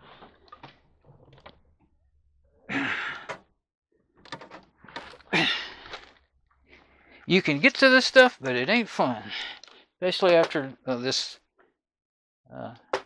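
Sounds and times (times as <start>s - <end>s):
person grunting: 5.3s - 5.8s.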